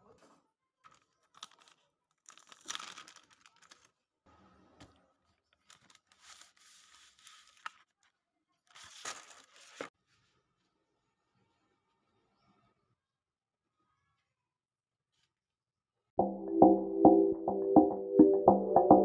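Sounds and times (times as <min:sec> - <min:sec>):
plastic wrapper tearing and crinkling: 0:00.8 - 0:04.0, 0:05.5 - 0:08.0.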